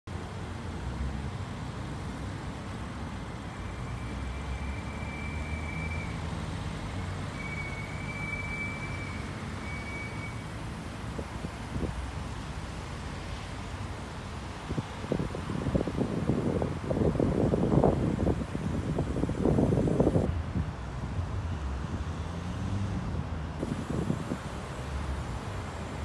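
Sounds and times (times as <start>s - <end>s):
vehicle rumble: 0.1s - 26.0s.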